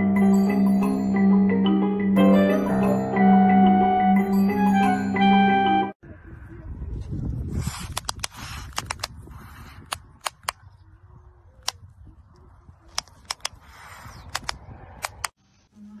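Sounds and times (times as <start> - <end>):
wind rumble on microphone: 6.0 - 15.3
owl bill snapping clicks: 9.9 - 10.6, 14.3 - 15.3.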